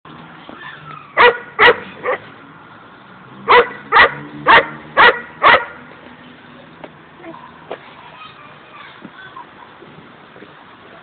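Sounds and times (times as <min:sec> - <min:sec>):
dog barking: 0:01.2 - 0:02.2, 0:03.5 - 0:05.8.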